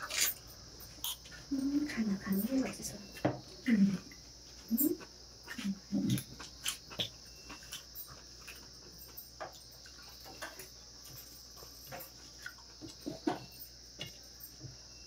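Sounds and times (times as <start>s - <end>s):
chewing and mouth clicks: 4.1s - 13.0s.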